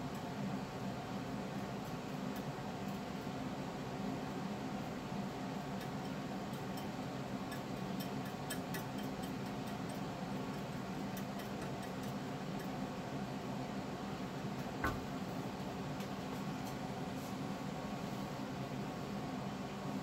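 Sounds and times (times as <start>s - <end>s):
mechanical room hum: 0.0s - 20.0s.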